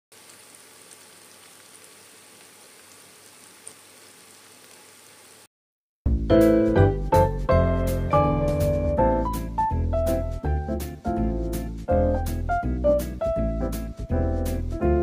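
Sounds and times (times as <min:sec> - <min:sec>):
chicken deep-frying in oil: 0:00.1 - 0:05.5
loud piano music: 0:06.1 - 0:15.0.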